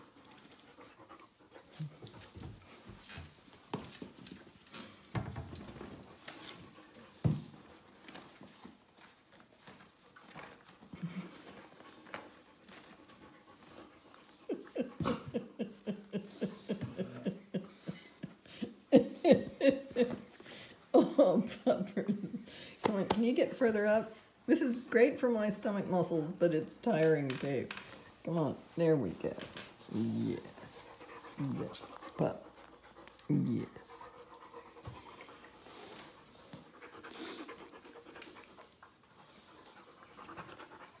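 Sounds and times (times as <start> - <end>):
dog panting softly: 0.0 - 4.9, 6.2 - 18.9, 29.8 - 41.0.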